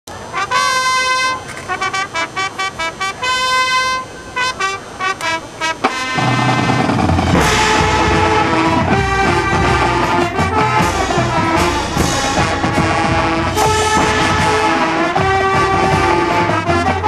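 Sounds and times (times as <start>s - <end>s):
marching band brass playing: 0.2s - 17.0s
band percussion: 0.4s - 17.0s
cymbal splash: 7.2s - 16.2s.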